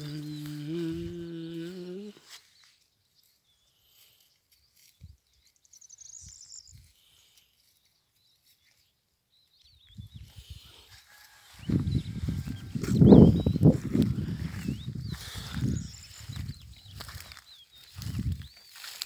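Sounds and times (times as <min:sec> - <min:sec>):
faint high chirp: 0:00.0 - 0:06.9, 0:14.5 - 0:19.0.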